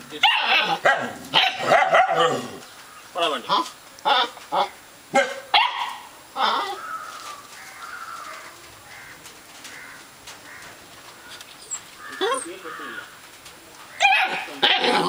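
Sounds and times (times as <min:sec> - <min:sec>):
large dog barking: 0:00.2 - 0:02.6, 0:05.1 - 0:06.1, 0:14.0 - 0:15.0.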